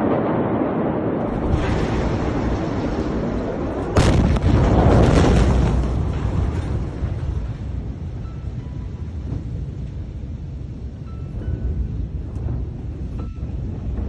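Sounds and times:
loud explosion boom: 0.0s - 8.2s
low rumble: 0.0s - 14.0s.

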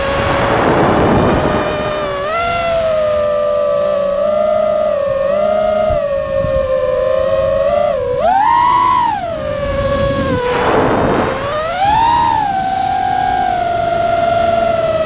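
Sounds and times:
drone motors whining: 0.0s - 15.0s
rush of air: 9.7s - 12.5s.

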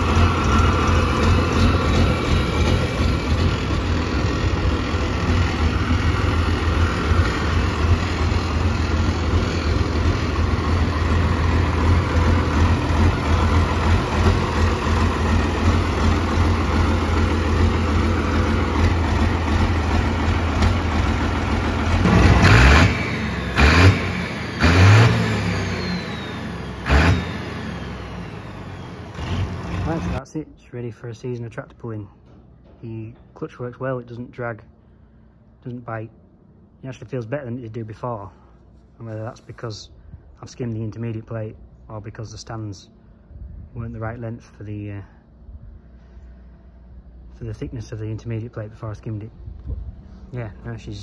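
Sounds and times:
engine revving: 0.0s - 30.2s
tractor engine running: 0.0s - 30.2s.

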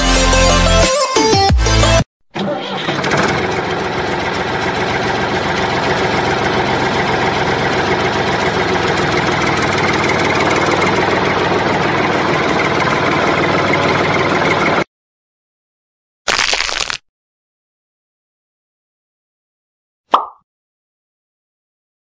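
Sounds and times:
diesel tractor engine idling: 2.4s - 14.9s.

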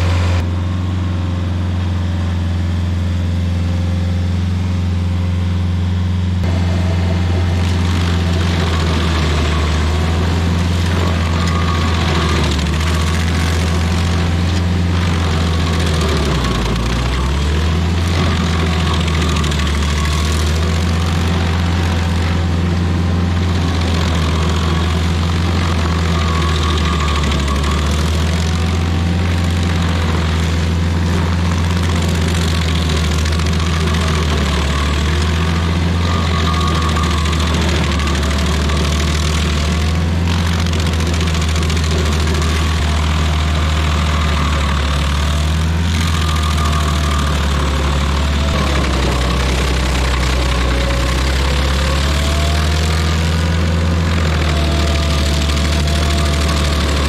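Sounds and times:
stump grinder engine: 0.0s - 57.0s
cutter wheel chipping wood: 6.4s - 57.0s.

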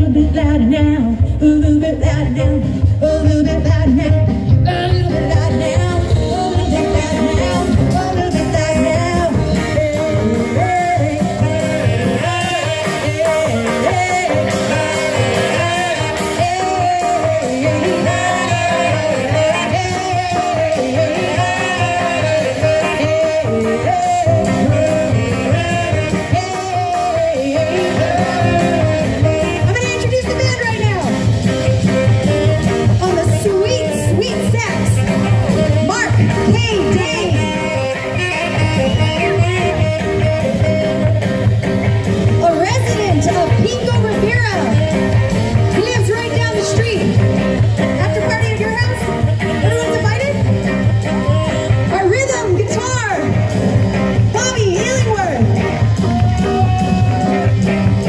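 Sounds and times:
woman singing: 0.0s - 31.2s, 32.2s - 41.3s, 42.2s - 45.0s, 45.7s - 47.2s, 51.5s - 53.4s
electric guitars: 0.0s - 58.0s
saxophone: 0.0s - 58.0s
upright bass: 0.0s - 58.0s.

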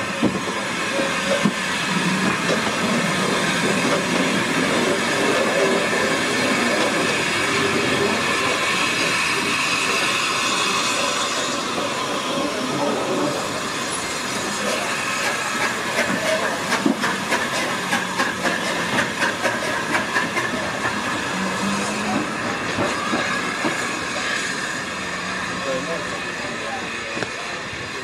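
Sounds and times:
steam locomotive hissing: 0.0s - 28.0s
wheels clicking over rail joints: 14.7s - 23.8s.

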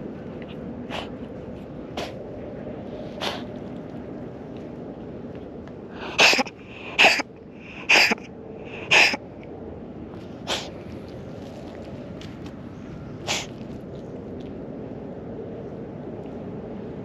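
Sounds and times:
person sneezing: 6.0s - 7.2s, 7.8s - 8.2s, 8.9s - 9.2s.

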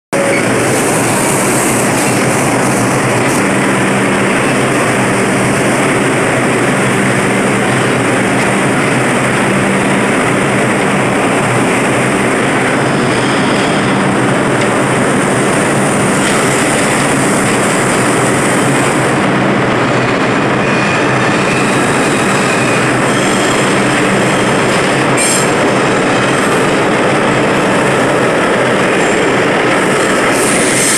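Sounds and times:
subway train departing: 0.1s - 30.9s
train wheel squeal: 0.2s - 1.7s, 20.6s - 25.6s
train wheel clatter: 0.2s - 30.9s.

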